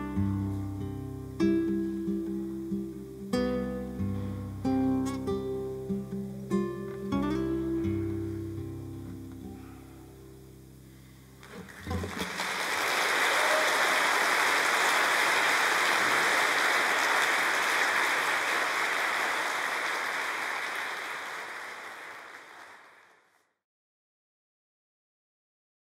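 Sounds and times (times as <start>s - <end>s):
classical guitar notes: 0.0s - 12.1s
audience applauding: 11.4s - 23.3s.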